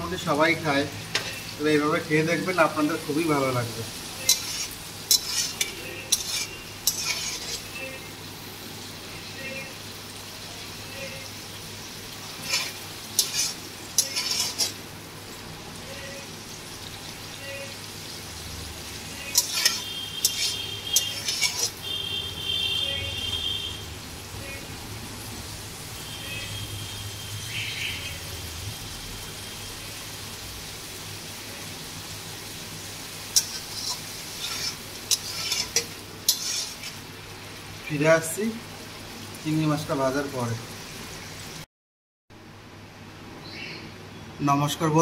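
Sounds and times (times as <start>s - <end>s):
prawns sizzling in oil: 0.0s - 41.7s
spatula scraping a pan: 4.2s - 8.0s, 12.3s - 14.8s, 19.2s - 21.8s, 33.4s - 37.0s.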